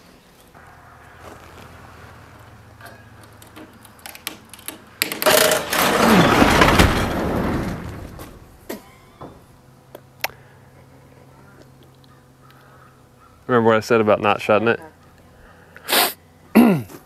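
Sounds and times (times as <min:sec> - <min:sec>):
roll-up door rattling down: 0:00.7 - 0:09.5.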